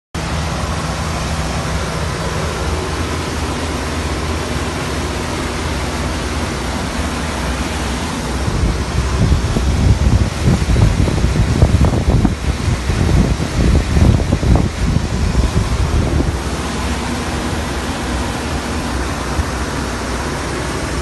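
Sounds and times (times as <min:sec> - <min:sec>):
boat engine drone: 0:00.2 - 0:21.0
rushing hiss of wake: 0:00.2 - 0:21.0
wind buffeting microphone: 0:00.2 - 0:21.0.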